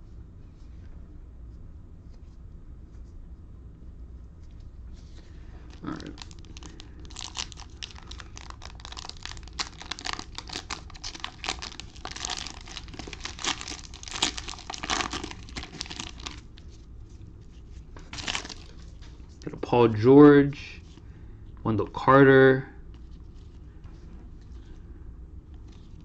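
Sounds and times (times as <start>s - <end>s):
cellophane wrapper crinkling and tearing: 5.7s - 16.9s, 18.0s - 19.6s.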